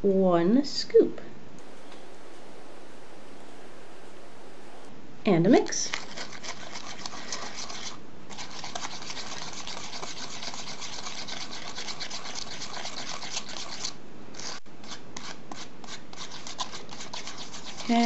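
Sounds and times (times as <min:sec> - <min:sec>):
plastic spoon scraping tray: 0:05.8 - 0:18.0.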